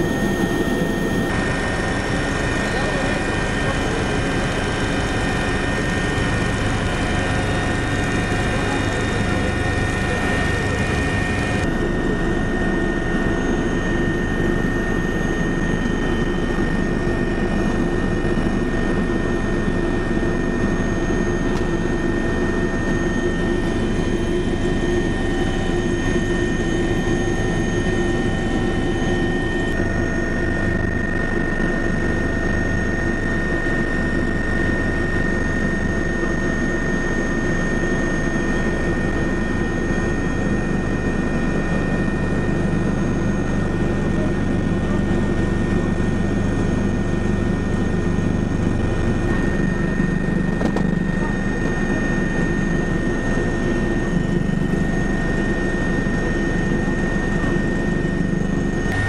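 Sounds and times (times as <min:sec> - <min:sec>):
helicopter engine and rotor drone: 0:00.0 - 0:59.0
high whining tones: 0:58.8 - 0:59.0.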